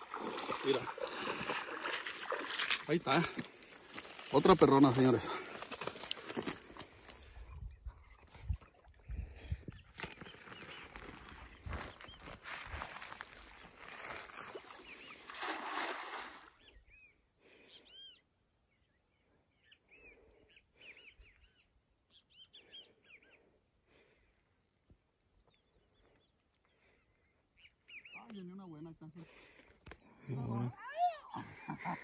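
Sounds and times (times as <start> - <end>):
net splashing into water: 0.0 - 3.3, 13.9 - 16.6
birds chirping: 0.0 - 23.6, 24.2 - 29.0.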